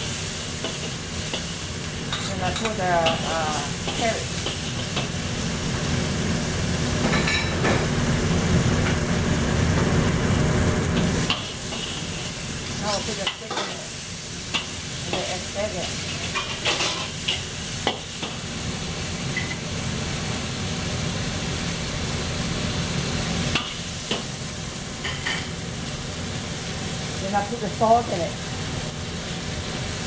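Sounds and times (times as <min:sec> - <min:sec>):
vegetables sizzling in wok: 0:00.0 - 0:30.0.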